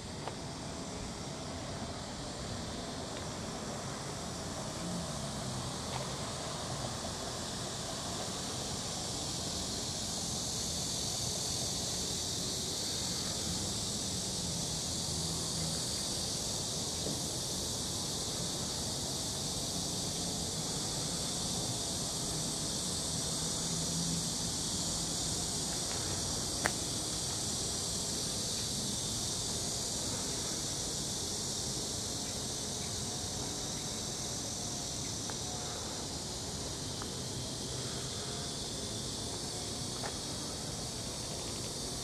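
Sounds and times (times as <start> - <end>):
insects chorus: 0.0 - 42.0.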